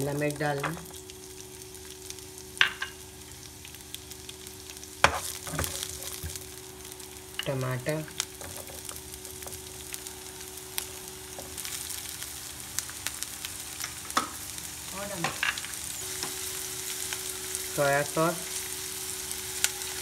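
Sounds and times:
vegetables sizzling in oil: 0.0 - 20.0
spatula stirring in pan: 5.0 - 6.4.

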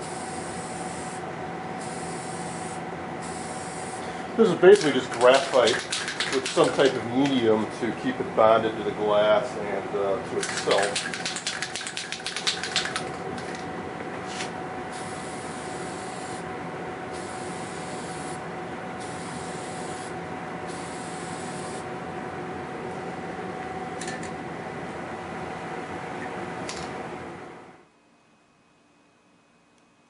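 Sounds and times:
background hum: 0.0 - 25.2
aerosol can ball rattling: 4.7 - 7.0, 10.4 - 13.6.

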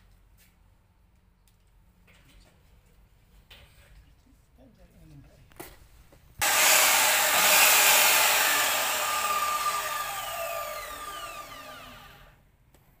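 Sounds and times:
miter saw motor winding down: 6.4 - 12.4.

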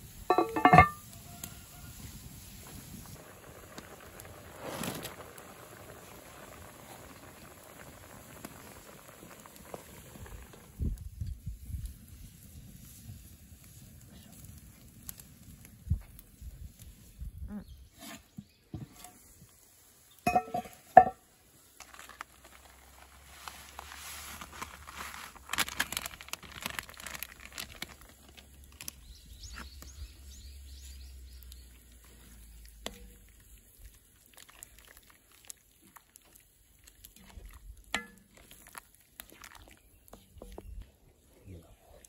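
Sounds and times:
wooden spoon knocking pot: 0.3 - 1.0, 20.3 - 21.2
crinkling and rustling: 21.7 - 29.8.

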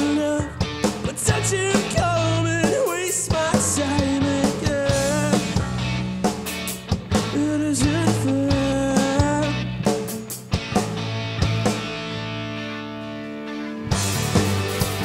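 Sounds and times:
man singing: 0.0 - 5.7, 7.2 - 10.3
live rock band: 0.0 - 15.0.

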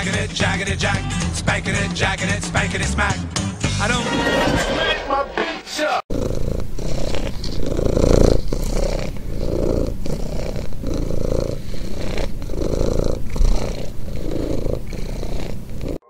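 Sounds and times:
cat purring: 6.1 - 16.0.

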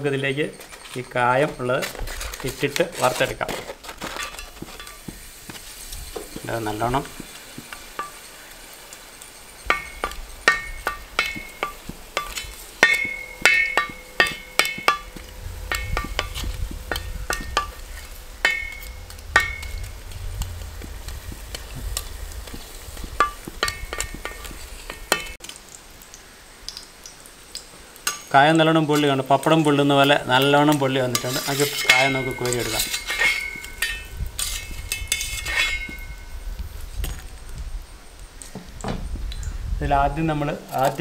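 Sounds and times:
frying in hot oil: 0.0 - 41.0
utensils knocking and scraping pan: 0.5 - 8.6, 9.6 - 25.4, 29.0 - 36.3.

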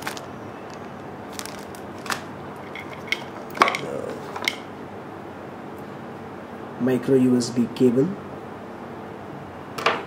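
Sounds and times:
plastic bag crinkling: 0.0 - 3.9.

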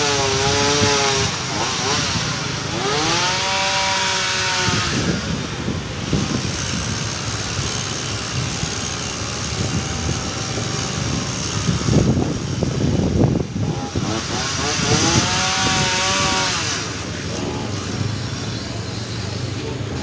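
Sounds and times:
small motorcycle accelerating past: 13.6 - 17.9.

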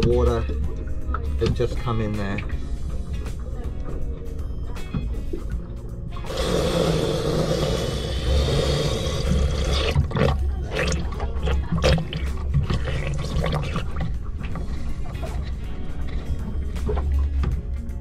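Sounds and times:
splashes and knocks: 0.0 - 2.6, 9.7 - 17.7
water rushing and gurgling: 5.1 - 17.5.

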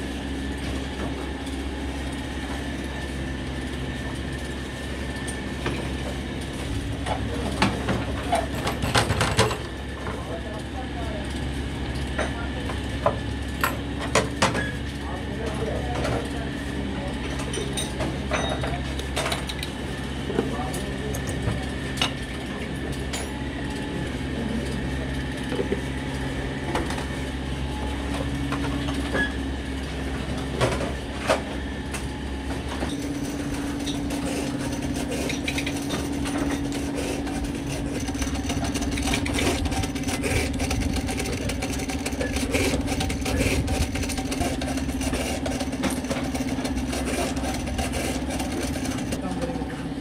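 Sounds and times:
workshop machinery humming: 0.0 - 50.0.

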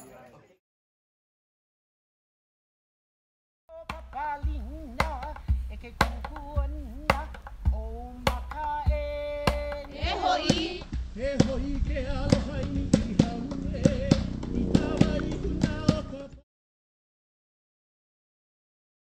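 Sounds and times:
person singing: 3.7 - 16.4
gourd drum strikes: 3.8 - 11.6
person chanting: 12.0 - 16.4.

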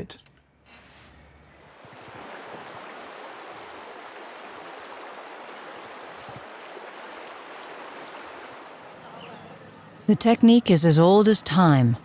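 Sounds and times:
river water rushing: 1.7 - 9.9.

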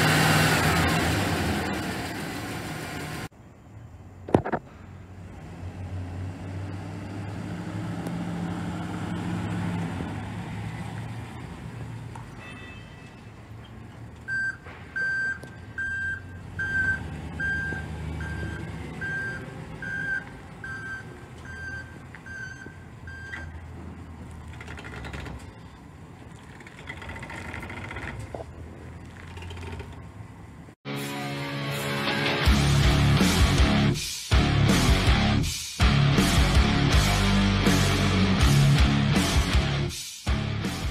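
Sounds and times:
truck engine running: 0.0 - 3.3, 13.6 - 30.8
reversing alarm beeping: 14.3 - 23.6.

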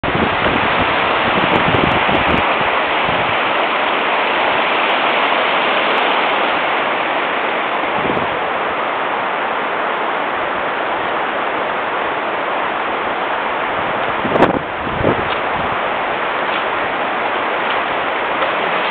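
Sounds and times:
wind buffeting microphone: 0.0 - 4.7, 7.7 - 9.0, 12.6 - 18.9
water rushing through dam: 0.0 - 18.9.

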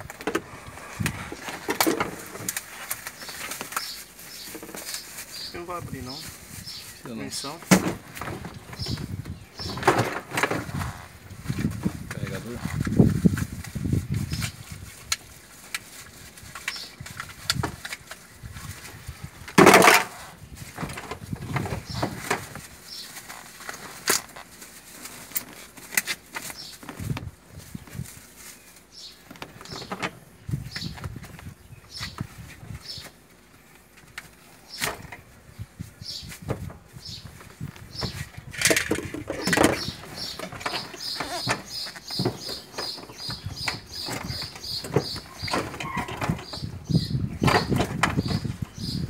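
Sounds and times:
plastic bags rustling: 0.0 - 31.6
plastic wrapping crinkling: 0.6 - 8.7, 22.0 - 29.9
objects knocking: 38.0 - 46.7.

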